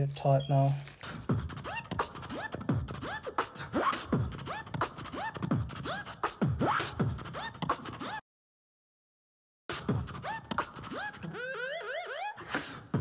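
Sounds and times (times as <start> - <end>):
beatbox deep bass hits: 1.0 - 8.2, 9.7 - 11.2
beatbox rising whoops: 1.0 - 8.2, 9.7 - 13.0.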